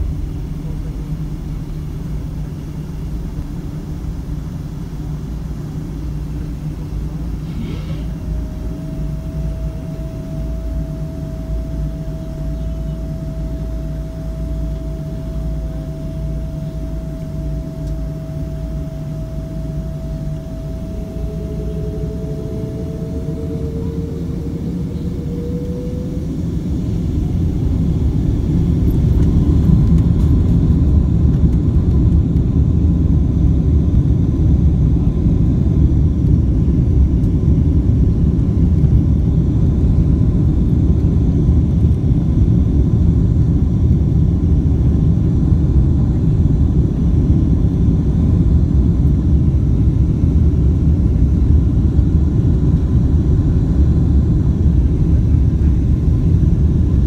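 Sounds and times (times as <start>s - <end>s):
aircraft cabin rumble: 0.0s - 57.0s
jet engines droning: 0.0s - 57.0s
steady whine: 0.0s - 57.0s
rising tone: 17.0s - 29.0s.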